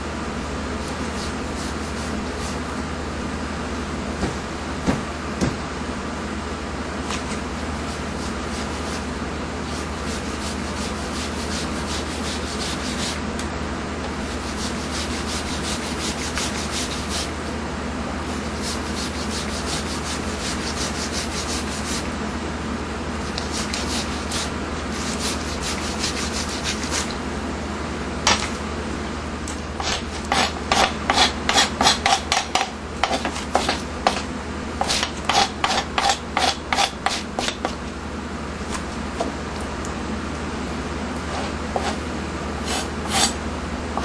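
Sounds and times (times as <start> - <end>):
knife scraping fish skin: 29.8 - 34.2, 34.8 - 37.7, 42.6 - 43.4.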